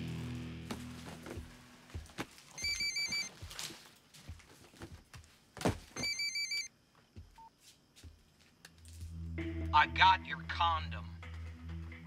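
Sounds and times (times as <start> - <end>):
mobile phone ringing: 2.6 - 3.3, 6.0 - 6.7.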